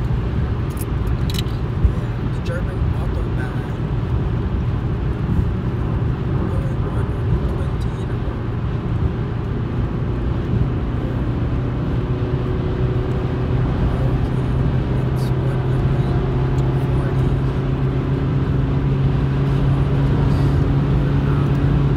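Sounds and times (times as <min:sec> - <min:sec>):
road and engine noise inside car: 0:00.0 - 0:21.9
low drone: 0:12.8 - 0:21.9.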